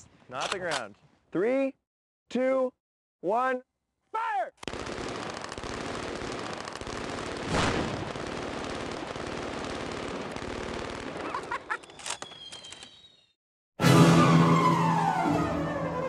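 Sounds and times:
automatic gunfire rattle: 0:04.6 - 0:11.0.

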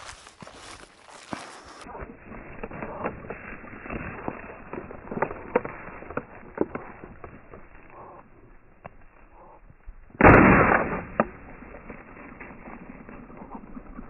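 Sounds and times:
footsteps crunching on stubble: 0:00.0 - 0:09.6.

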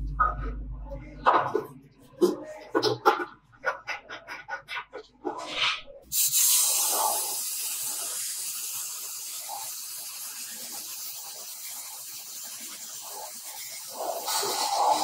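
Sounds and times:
spray paint hissing: 0:05.4 - 0:15.0.

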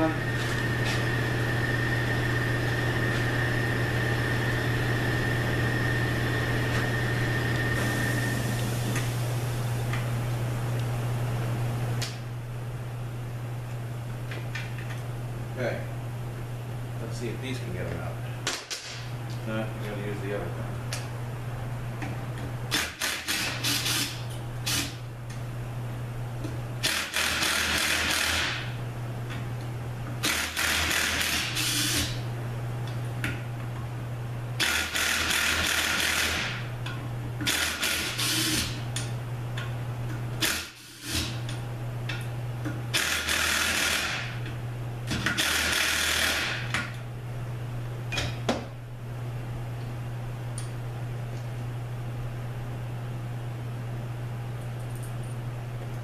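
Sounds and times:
steady low hum: 0:00.0 - 0:56.0
power tool running in bursts: 0:34.6 - 0:36.6, 0:37.4 - 0:38.8, 0:42.9 - 0:44.4, 0:45.3 - 0:46.7.

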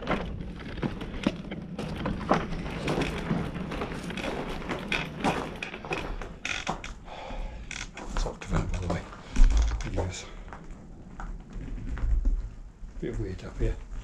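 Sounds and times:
footsteps crunching on gravel: 0:00.0 - 0:06.8.

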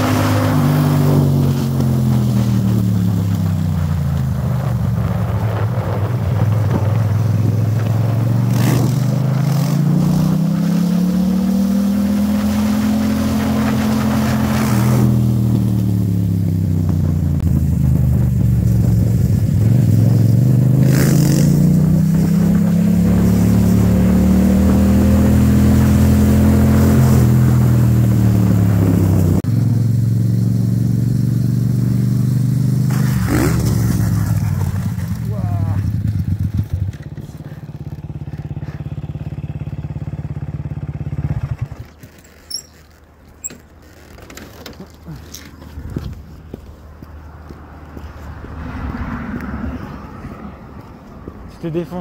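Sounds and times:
dirt bike engine revving: 0:07.7 - 0:17.1, 0:19.6 - 0:41.8.

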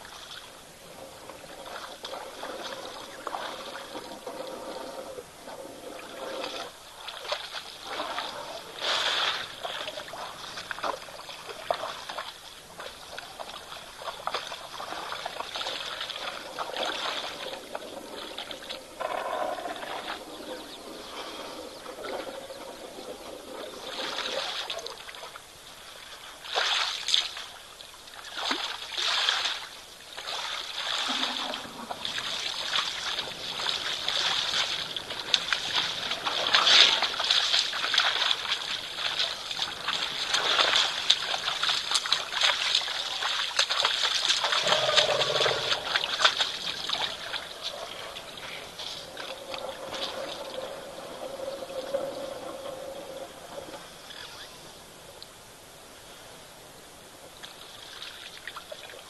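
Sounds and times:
elephants splashing in water: 0:00.0 - 0:53.5.

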